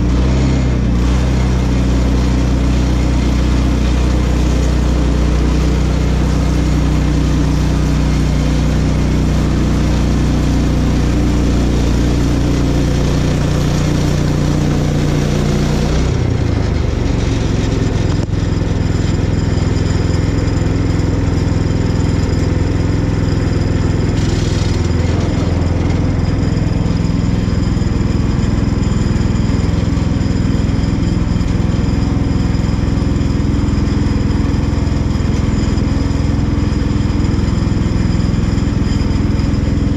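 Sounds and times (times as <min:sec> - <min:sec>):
bandsaw blade sawing log: 0:00.0 - 0:33.0
small gas engine running: 0:00.0 - 0:39.9.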